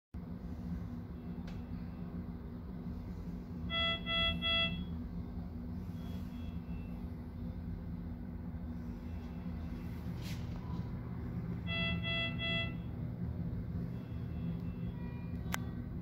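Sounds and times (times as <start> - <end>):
low room hum: 0.2 - 16.0
monitor alarm short beeps: 3.7 - 4.9, 11.7 - 12.9.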